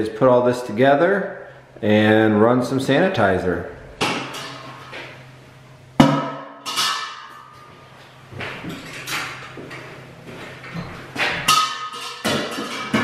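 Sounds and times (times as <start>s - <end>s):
metal bucket clanking down: 11.3s - 13.0s.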